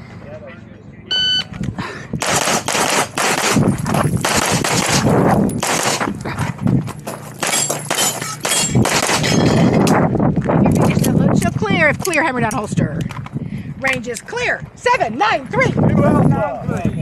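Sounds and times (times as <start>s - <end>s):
pistol firing rapid shots: 2.2s - 6.1s, 7.4s - 9.2s.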